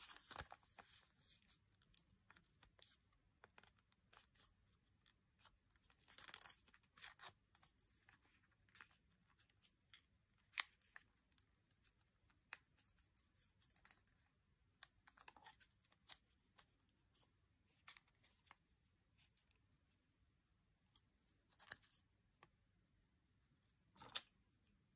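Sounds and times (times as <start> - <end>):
paper being folded and creased: 0.0 - 18.6.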